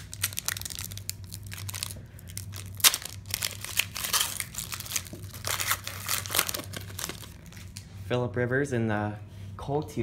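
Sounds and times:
foil wrapper tearing and crinkling: 0.0s - 7.8s.

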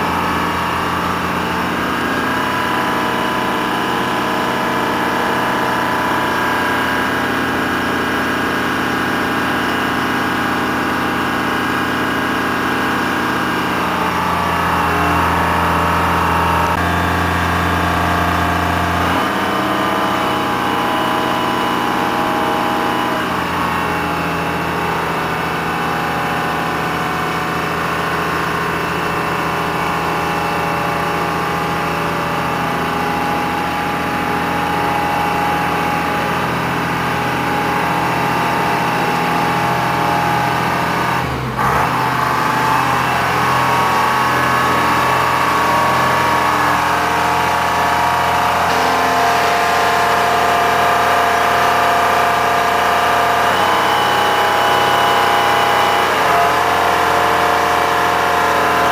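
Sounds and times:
diesel crane engine running: 0.0s - 58.9s.

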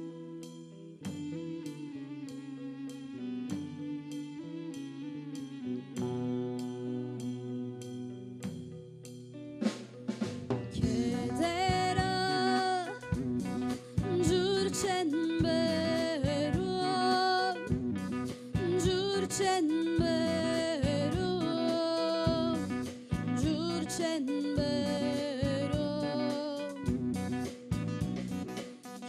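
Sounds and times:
bass guitar: 0.0s - 29.0s
electric guitar: 0.0s - 29.0s
keyboard: 0.0s - 29.0s
drum kit: 6.0s - 29.0s
woman singing: 10.8s - 17.8s, 18.5s - 27.0s.

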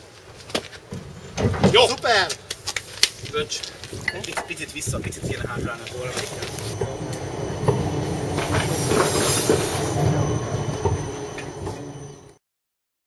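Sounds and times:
sharp clicks from wheels: 0.1s - 10.1s
tram wheel-on-rail rumble: 3.2s - 12.4s
thin wheel squeal: 6.0s - 12.4s.

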